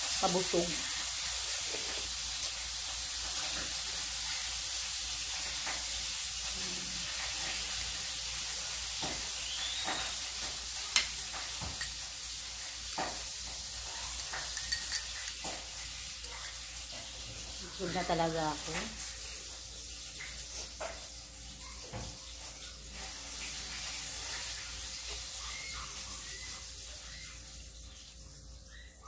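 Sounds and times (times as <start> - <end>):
metal spoon scraping eggshell: 14.1 - 15.8.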